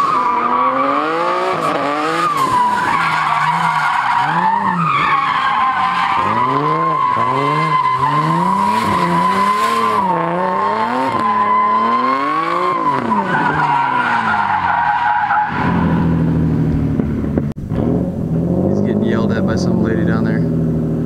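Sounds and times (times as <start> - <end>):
tire squeal: 0.0 - 16.3
car engine revving: 0.0 - 21.0.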